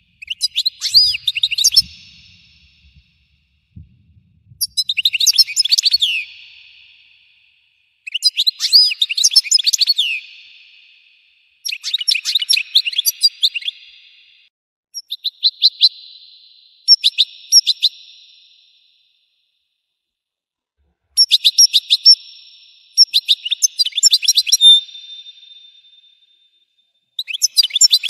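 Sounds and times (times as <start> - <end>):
goldfinch twittering trills: 0.2 - 2.7.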